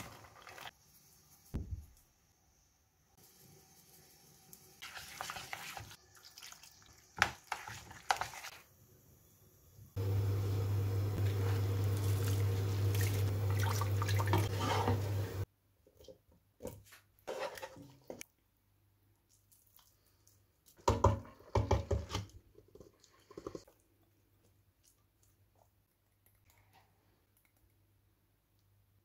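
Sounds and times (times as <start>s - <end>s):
boiling water rushing: 10.0s - 15.4s.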